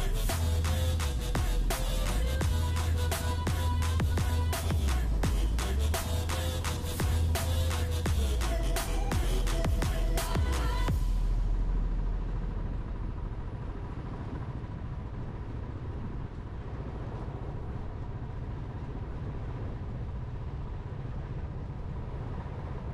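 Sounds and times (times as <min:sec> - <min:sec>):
music: 0:00.0 - 0:12.1
vehicle driving on road: 0:00.0 - 0:22.9
wind noise: 0:00.0 - 0:22.9.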